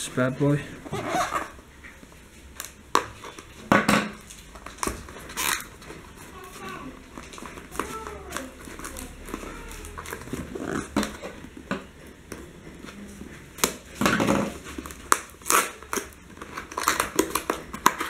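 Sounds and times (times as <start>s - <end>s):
cardboard scraping: 0.8s - 1.6s
tape peeling off cardboard: 4.3s - 11.3s, 13.6s - 18.0s.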